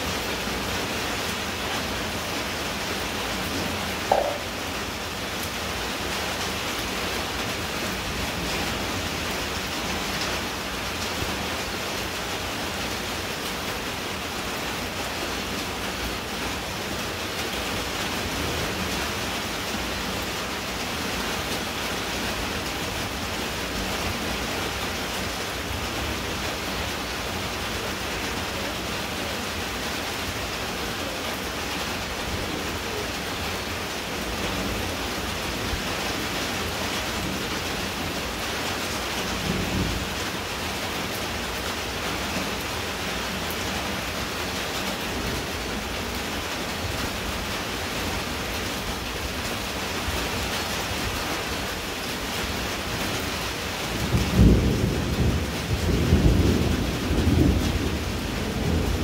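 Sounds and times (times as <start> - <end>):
steady rain on puddled ground: 0.0 - 59.0
deep rumble of thunder: 53.9 - 59.0.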